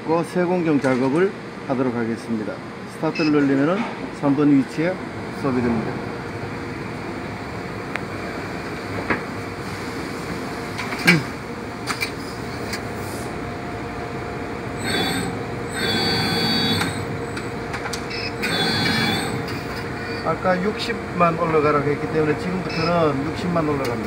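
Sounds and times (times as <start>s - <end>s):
servo motors whining: 14.8s - 17.5s, 18.1s - 20.2s.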